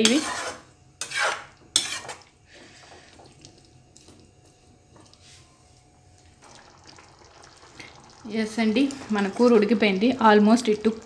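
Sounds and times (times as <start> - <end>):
curry simmering in pan: 6.0 - 11.0.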